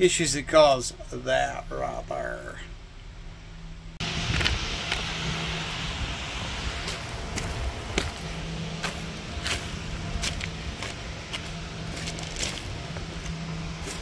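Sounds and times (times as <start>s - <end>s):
steady low hum: 0.0s - 14.0s
footsteps crunching on gravel: 6.8s - 14.0s.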